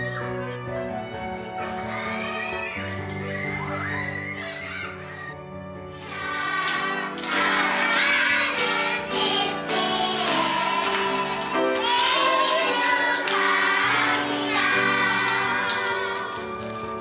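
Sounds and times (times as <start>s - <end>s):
music: 0.0s - 17.0s
children singing: 6.0s - 16.6s.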